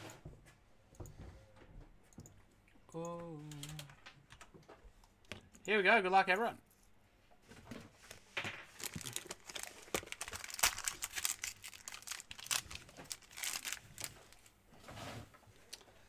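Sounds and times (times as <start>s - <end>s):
foil wrapper tearing and crinkling: 8.7s - 14.5s.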